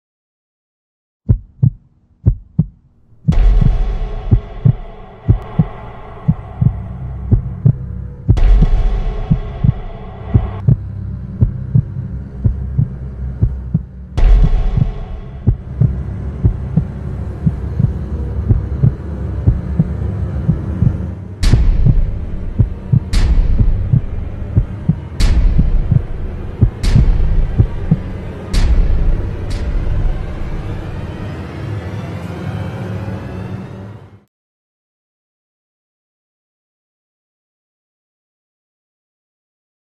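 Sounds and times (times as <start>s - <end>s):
low heartbeat-like pulse: 1.3s - 31.0s
humming drone: 3.0s - 34.2s
swelling hits: 3.2s - 32.3s
sharp impact hits: 3.3s - 10.8s, 14.2s - 16.9s.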